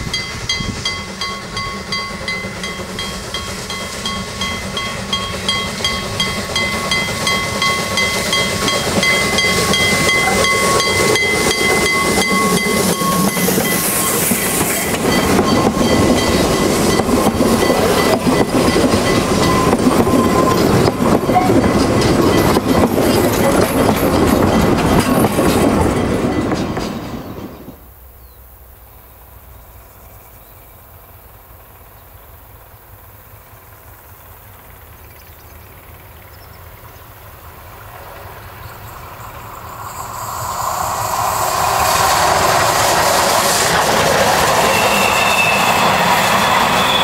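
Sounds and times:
steady high tone: 0.0 - 23.0, 38.8 - 47.0
loud hiss of steam: 0.0 - 25.9, 37.4 - 47.0
steam locomotive chuffing: 0.0 - 28.1, 30.9 - 47.0
coaches clattering over rail joints: 0.4 - 27.8.

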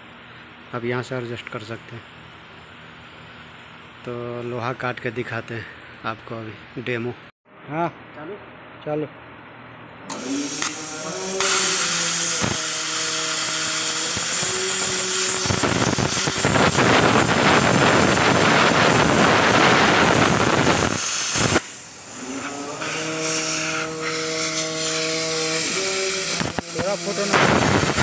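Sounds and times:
machine humming: 10.1 - 28.0
plasma cutter hissing: 10.1 - 28.0.

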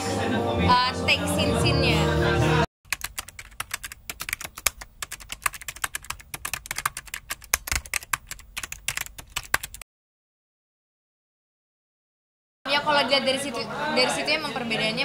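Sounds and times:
keyboard typing clicks: 2.9 - 9.8.

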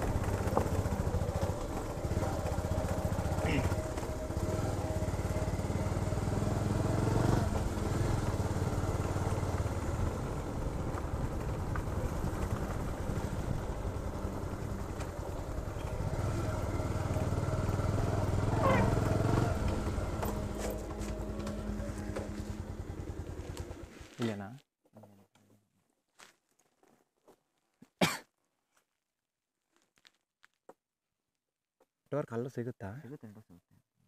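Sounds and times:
motorcycle engine running: 0.0 - 24.2.

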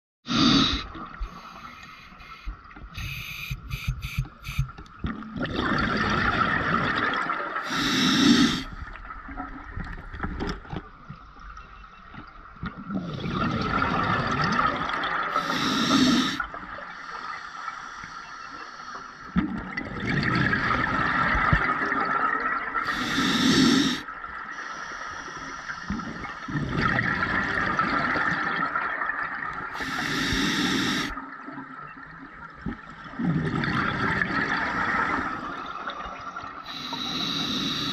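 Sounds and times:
regulator breathing hiss: 0.3 - 4.7, 7.6 - 8.7, 15.3 - 16.4, 22.8 - 26.0, 29.8 - 31.2, 36.6 - 37.9
exhaled bubbles rushing: 4.5 - 7.7, 12.7 - 15.3, 19.4 - 22.9, 25.9 - 29.8, 32.6 - 36.7.

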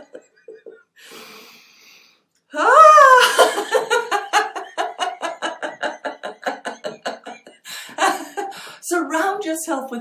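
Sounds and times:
woman laughing heartily: 0.0 - 1.0, 2.6 - 8.8.

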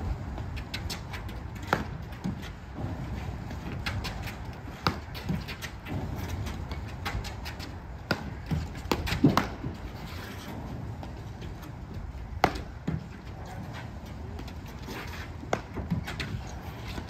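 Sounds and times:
ball bouncing on court: 3.8 - 9.8, 12.4 - 13.0
paddles striking ball: 8.0 - 9.8, 12.4 - 13.0.

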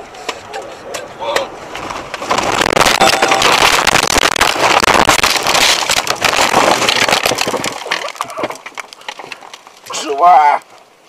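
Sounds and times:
car rolling over crashing: 1.7 - 9.4.

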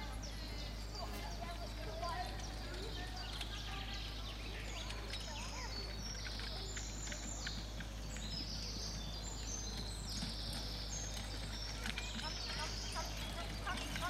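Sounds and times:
birds chirping: 0.0 - 14.0
faint clicks: 1.1 - 8.5.

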